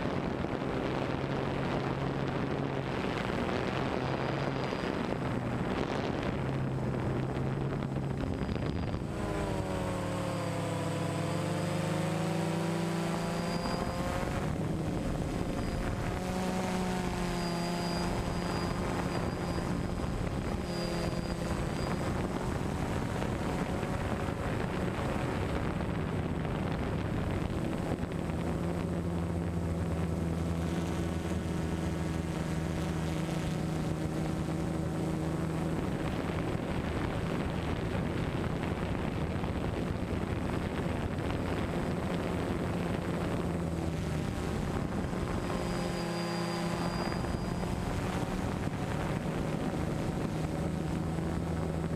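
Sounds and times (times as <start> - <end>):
drone propellers whirring: 0.4 - 38.1, 39.5 - 51.9.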